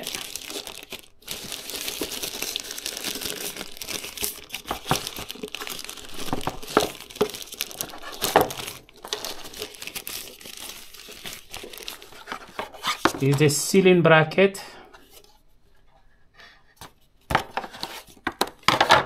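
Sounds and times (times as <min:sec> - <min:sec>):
packaging crinkling and rustling: 0:00.0 - 0:13.5, 0:17.3 - 0:19.0.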